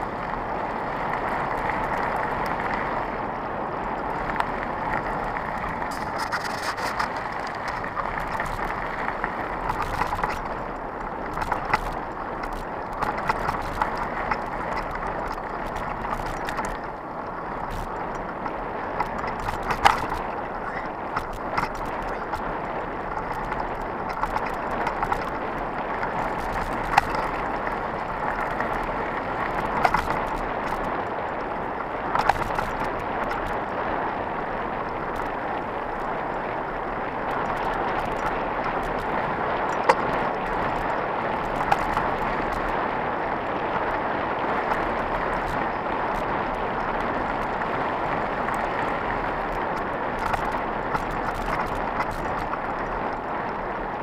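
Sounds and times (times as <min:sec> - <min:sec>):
bike tyres rushing on gravel: 0:00.0 - 0:54.0
bike knocking over bumps: 0:05.0 - 0:16.9, 0:17.6 - 0:31.0.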